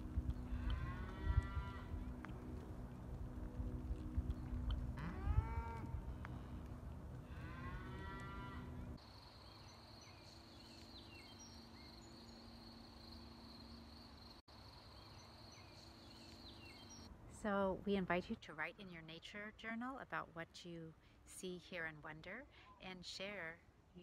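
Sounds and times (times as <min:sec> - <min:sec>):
cattle mooing: 0:00.5 - 0:02.1, 0:04.9 - 0:06.1, 0:07.2 - 0:08.9
bird chirps: 0:09.3 - 0:17.1.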